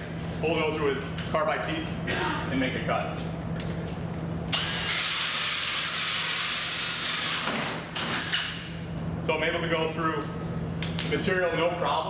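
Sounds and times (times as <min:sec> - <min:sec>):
drill hole saw cutting board: 0:04.5 - 0:08.6.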